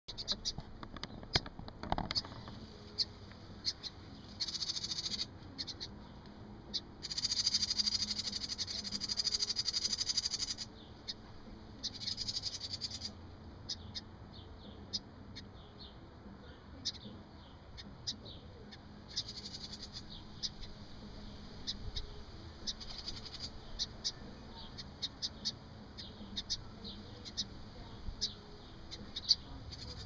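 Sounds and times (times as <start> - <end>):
wren buzzy alarm chatter: 2.1 - 6.0, 6.7 - 11.2, 11.8 - 14.1, 17.8 - 20.8, 21.6 - 30.0.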